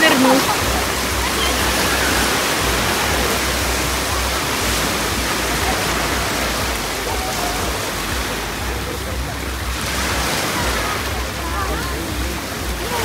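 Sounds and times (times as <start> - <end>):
small waves washing on sand: 0.0 - 13.0
wind rumbling on microphone: 0.0 - 13.0.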